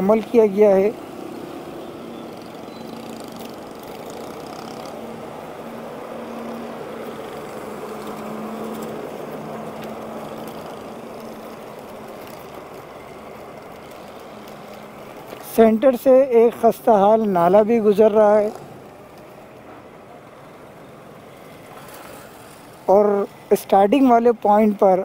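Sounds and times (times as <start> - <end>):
road and traffic noise: 0.0 - 25.0
small engine running: 0.6 - 15.4.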